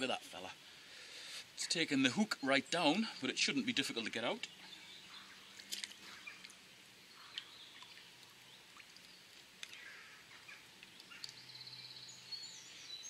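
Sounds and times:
faint steady hiss: 0.0 - 13.0
faint bird calls: 4.5 - 13.0.

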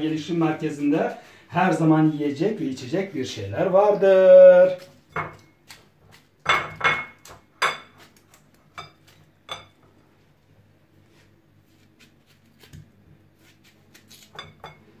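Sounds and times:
knife clinking on ceramic plates: 5.1 - 5.5, 6.4 - 8.1, 8.7 - 9.8, 14.3 - 14.8.

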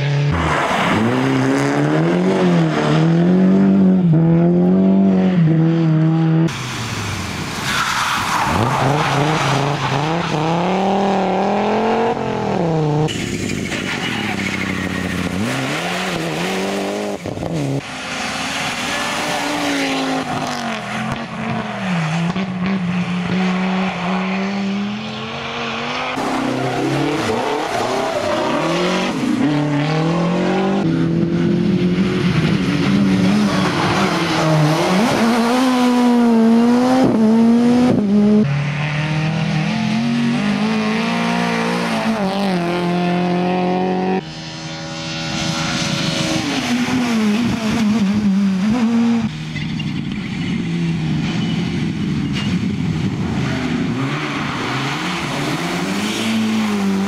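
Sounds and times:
rally car engines revving: 0.0 - 57.0
faint tire squeal: 7.6 - 10.3, 13.1 - 15.3.

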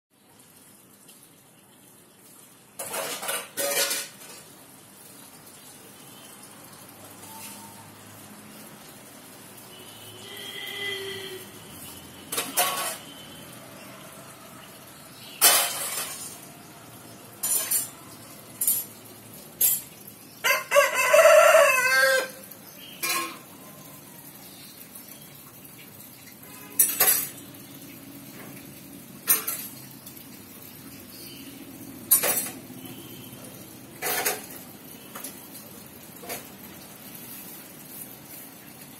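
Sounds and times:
rooster crowing: 20.4 - 22.4.

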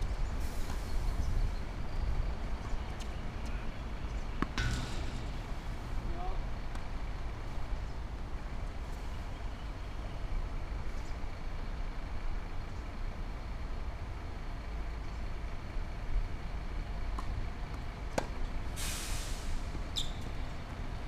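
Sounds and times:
low outdoor rumble: 0.0 - 21.0
tennis racket hitting ball: 4.4 - 5.5.

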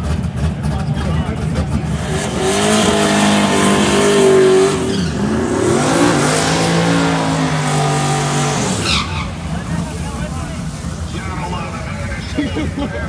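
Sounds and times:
tyres spinning on track: 0.0 - 13.0
engine revving at high revs: 0.8 - 9.0.

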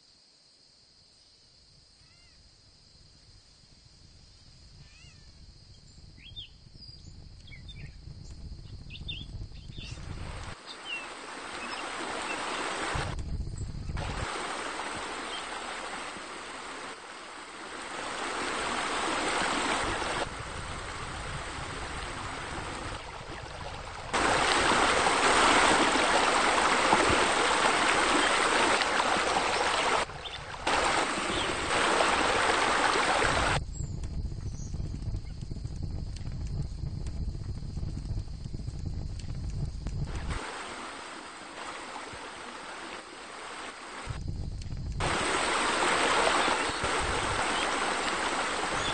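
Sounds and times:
rushing splashing fountain water: 10.2 - 13.2, 14.0 - 33.6, 40.1 - 44.2, 45.0 - 48.9.

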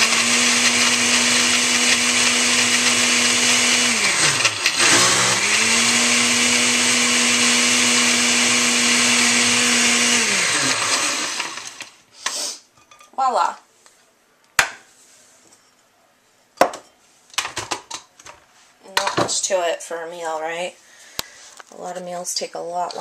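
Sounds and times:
blender motor running: 0.0 - 12.0.

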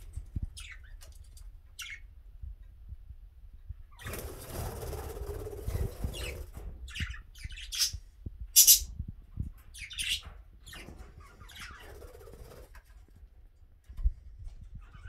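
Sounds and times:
budgerigars chirping and squawking: 0.6 - 1.0, 1.8 - 2.0, 4.8 - 8.0, 8.6 - 9.0, 9.7 - 12.6.

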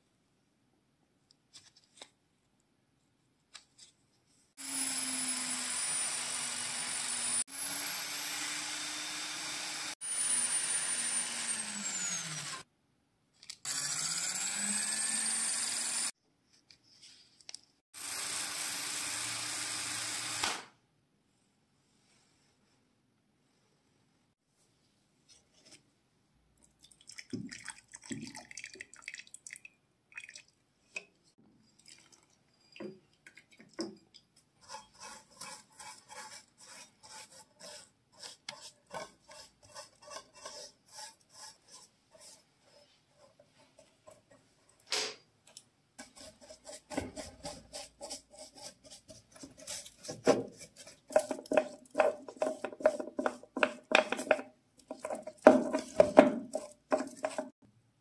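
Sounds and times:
brush swish: 34.6 - 44.2, 46.0 - 53.4
brush scrubbing metal part: 34.6 - 44.6, 46.0 - 57.6.

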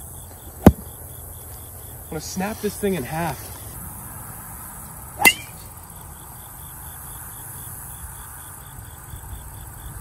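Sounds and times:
insects chirping: 0.0 - 10.0
golf club striking ball: 5.2 - 5.6.

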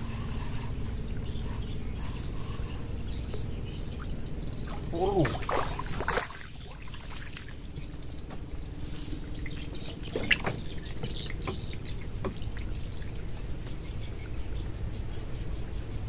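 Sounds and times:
insects chirping: 0.0 - 16.0
steady high-pitched whine: 0.0 - 16.0
fish knocking in boat: 9.4 - 12.7.

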